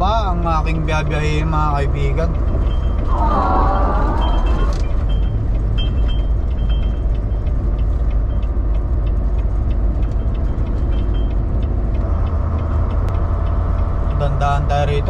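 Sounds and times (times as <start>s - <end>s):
truck engine and road rumble: 0.0s - 15.0s
faint light ticks: 5.5s - 15.0s.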